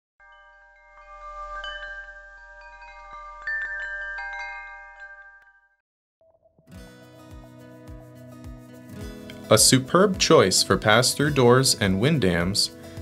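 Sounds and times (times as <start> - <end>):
chime tones ringing: 0.2 - 5.8.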